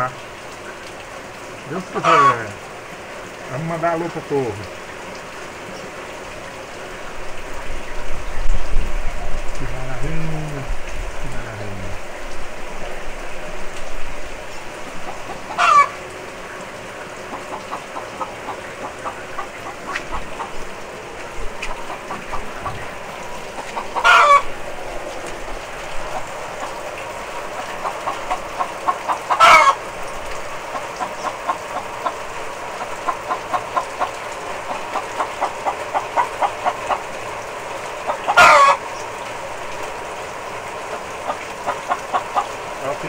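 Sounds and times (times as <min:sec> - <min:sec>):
steady rain: 0:00.0 - 0:43.0
chicken clucking: 0:02.0 - 0:02.5, 0:15.0 - 0:16.0, 0:21.6 - 0:24.5, 0:27.5 - 0:29.8, 0:32.8 - 0:37.1, 0:38.0 - 0:38.8, 0:40.9 - 0:42.6
chicken squawking: 0:02.0 - 0:02.6, 0:15.0 - 0:16.0, 0:17.3 - 0:20.8, 0:21.6 - 0:24.6, 0:27.6 - 0:29.8, 0:38.0 - 0:39.0, 0:40.9 - 0:42.6.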